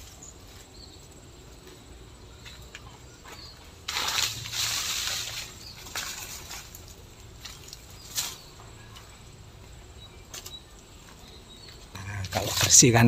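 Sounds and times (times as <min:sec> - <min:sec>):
dry leaves crackling and rustling: 0:03.2 - 0:09.2.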